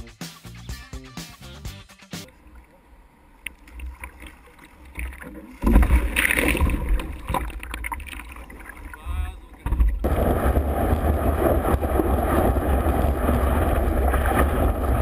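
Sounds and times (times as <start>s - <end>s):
loud splashing: 5.0s - 9.0s, 10.0s - 15.0s
wind rumble on microphone: 9.7s - 15.0s
rushing surf: 10.0s - 15.0s.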